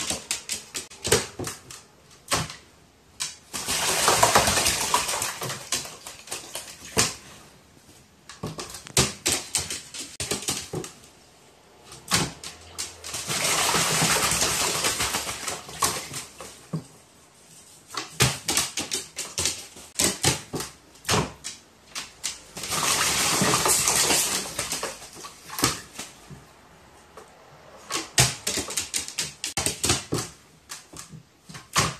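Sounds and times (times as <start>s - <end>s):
bird wings splashing water: 3.5s - 7.2s, 12.1s - 16.5s, 22.6s - 26.1s.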